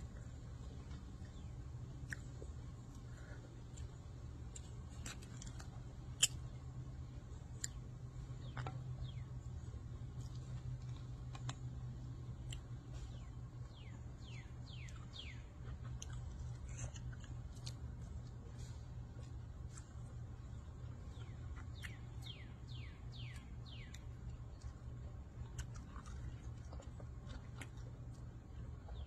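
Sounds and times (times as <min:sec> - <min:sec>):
wet chewing and mouth smacks: 0:00.0 - 0:06.6, 0:12.4 - 0:22.4, 0:23.1 - 0:29.0
low hum: 0:00.0 - 0:29.0.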